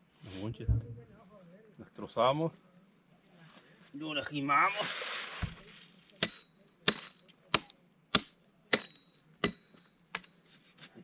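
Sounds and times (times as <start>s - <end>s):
hatchet chopping: 6.2s - 10.4s.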